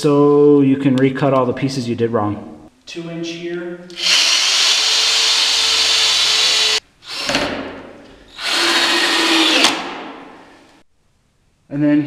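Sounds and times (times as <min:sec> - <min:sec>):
power drill drilling into wood: 0:04.0 - 0:07.4, 0:08.3 - 0:09.8.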